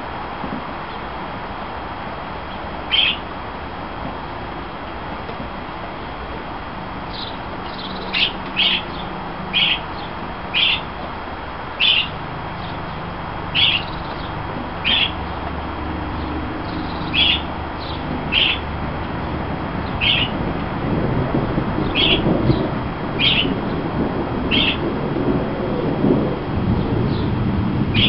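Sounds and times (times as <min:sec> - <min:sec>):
bird chirping: 0:02.9 - 0:03.2, 0:07.1 - 0:10.9, 0:11.8 - 0:15.4, 0:16.1 - 0:18.7, 0:19.8 - 0:20.4, 0:21.8 - 0:23.6, 0:24.5 - 0:24.8.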